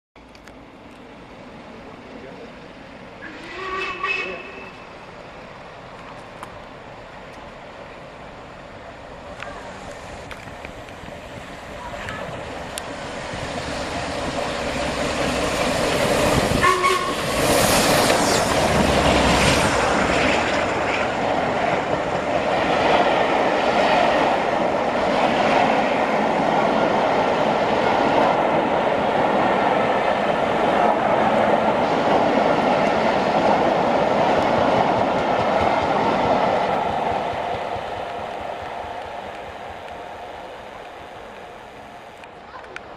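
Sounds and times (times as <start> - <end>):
steam train passing: 0.3 - 42.9
steam whistle blast: 3.2 - 4.8, 16.6 - 17.2.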